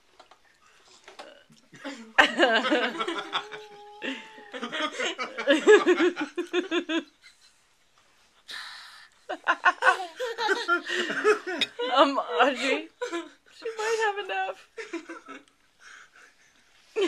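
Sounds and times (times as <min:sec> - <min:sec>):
toddlers giggling: 0:02.2 - 0:07.1, 0:09.6 - 0:11.8
short breathy hiss: 0:08.5 - 0:09.2.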